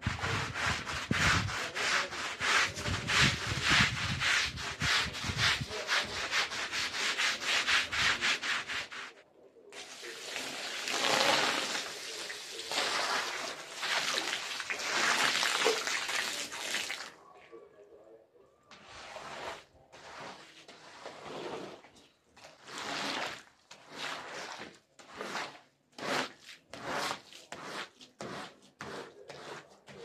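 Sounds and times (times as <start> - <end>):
push broom scrubbing wet rug: 0.0 - 9.2, 9.8 - 17.1, 18.8 - 30.0
hose water splashing: 9.8 - 17.2, 22.4 - 27.1.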